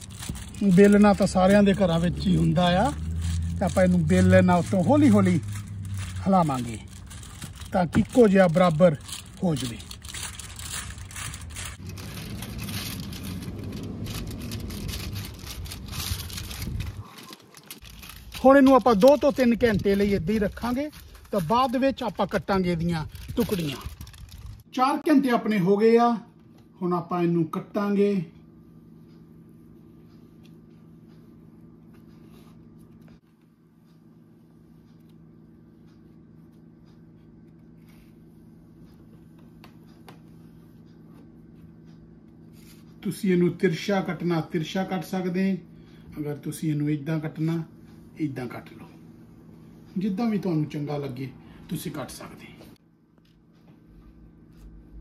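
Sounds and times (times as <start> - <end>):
foil crinkling: 0.0 - 24.6
steady low hum: 0.0 - 24.8, 25.6 - 55.0.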